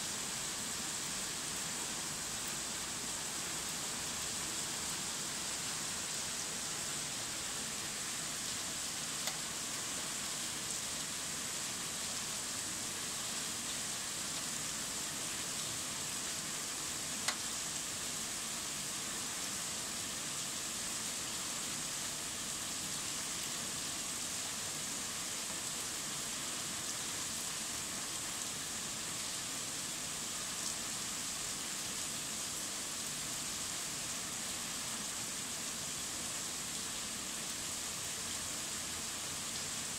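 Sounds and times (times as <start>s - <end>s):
rain on asphalt: 0.1s - 39.9s
faint sharp ticks: 17.2s - 17.4s.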